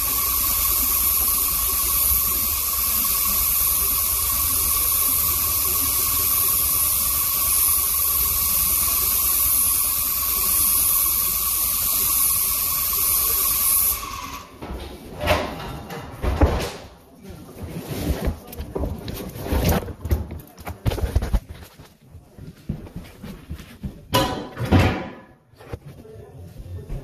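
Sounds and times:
paint sprayer hissing: 0:00.0 - 0:14.6.

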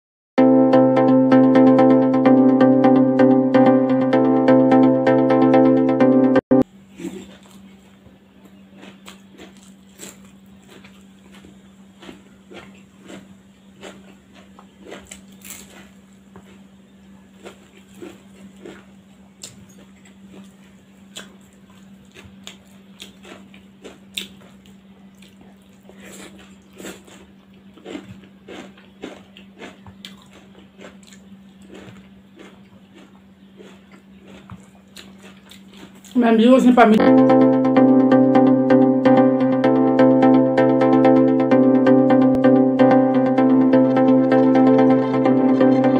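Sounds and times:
person chewing: 0:06.9 - 0:36.2.

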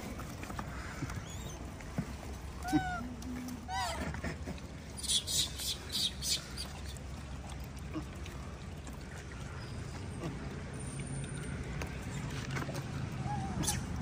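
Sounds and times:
monkeys squeaking: 0:13.3 - 0:14.0.

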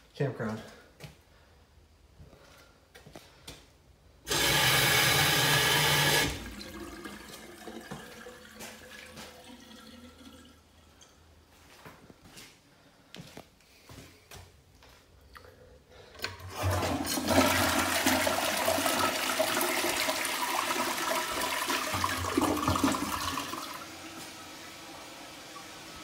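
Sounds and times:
toilet refilling hiss: 0:04.3 - 0:10.8, 0:16.3 - 0:26.0
toilet flushing: 0:04.3 - 0:11.0, 0:16.2 - 0:26.0.

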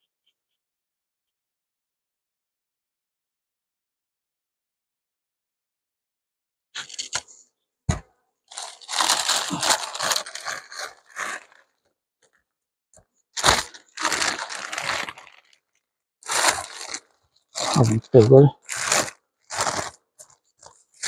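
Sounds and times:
plastic sheet crinkling: 0:06.8 - 0:07.4, 0:08.5 - 0:12.4, 0:13.3 - 0:21.0.

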